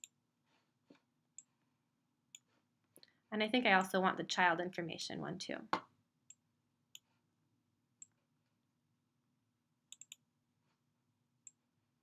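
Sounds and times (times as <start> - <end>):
computer mouse clicks: 9.9 - 10.3.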